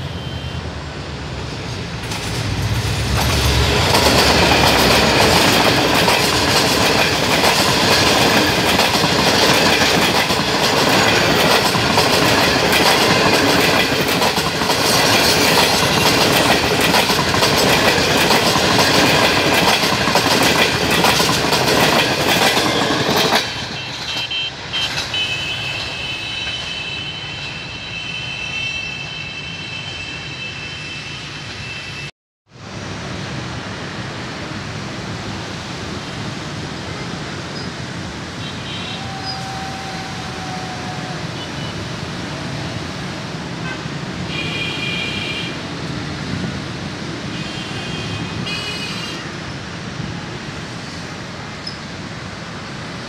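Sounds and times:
road traffic hum: 0:00.0 - 0:53.0
train wheels clattering over rails: 0:01.6 - 0:26.6.

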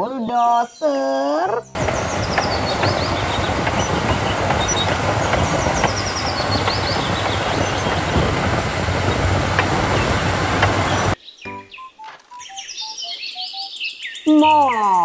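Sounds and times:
bulldozer diesel engine under load: 0:01.8 - 0:11.2
steel tracks clanking and grinding: 0:01.8 - 0:11.2.

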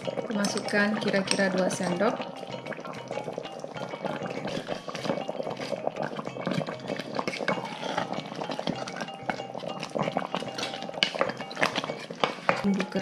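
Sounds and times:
metal spoon knocking on pot: 0:00.0 - 0:13.0
spoon scraping a pot: 0:00.0 - 0:13.0.

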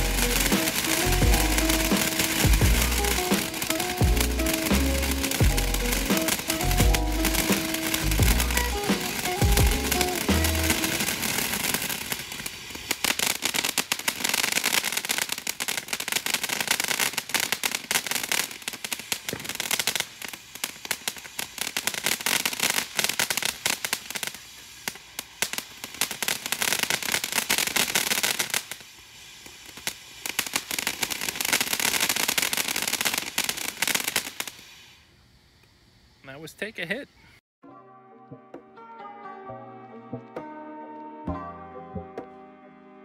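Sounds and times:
fountain firework crackling: 0:00.0 - 0:37.0.

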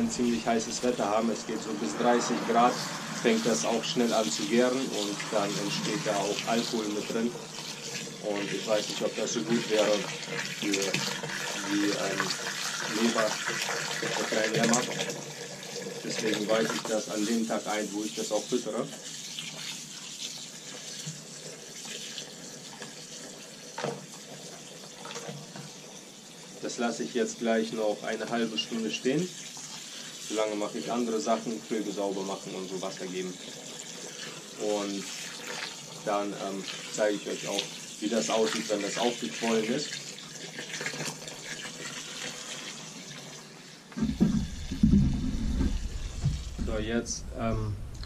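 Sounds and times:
water running from hose into bucket: 0:00.0 - 0:48.0
loud knocks: 0:44.0 - 0:48.0.

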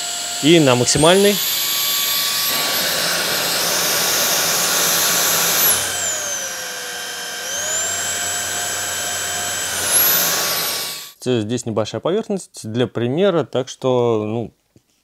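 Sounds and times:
vacuum cleaner motor whine: 0:00.0 - 0:11.2.

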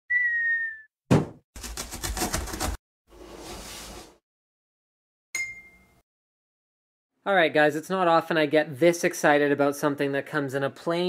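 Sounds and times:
loud thud: 0:01.1 - 0:01.4
short bright ding: 0:05.4 - 0:06.0.

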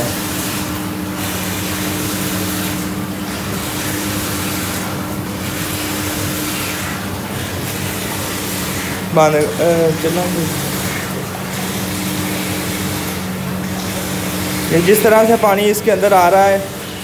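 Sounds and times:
churning bubbling water: 0:00.0 - 0:17.0
motor hum: 0:00.0 - 0:17.0
water pouring from spout: 0:00.0 - 0:17.0.

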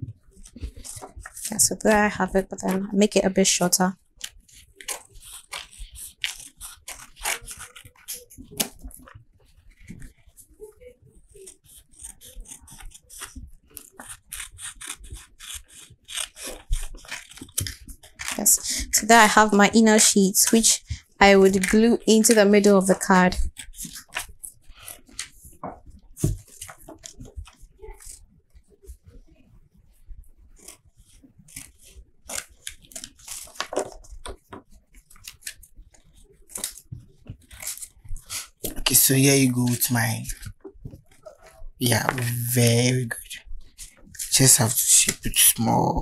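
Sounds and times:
paper rubbing and creasing: 0:00.0 - 0:46.0.

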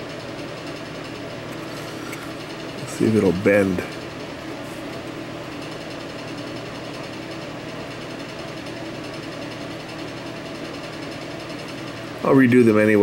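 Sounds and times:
machine hum with hiss: 0:00.0 - 0:13.0.

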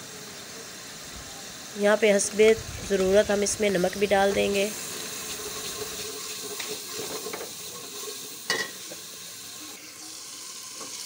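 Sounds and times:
masala sizzling in hot oil: 0:00.0 - 0:11.0
metal spoon stirring and scraping: 0:05.3 - 0:08.8
spoon clinking against pot: 0:08.5 - 0:08.8.

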